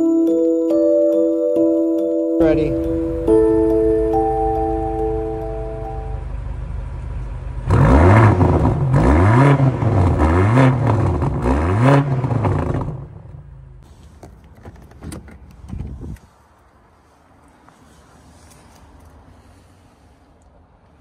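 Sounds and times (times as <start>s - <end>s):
car engine idling and revving: 2.7s - 16.4s.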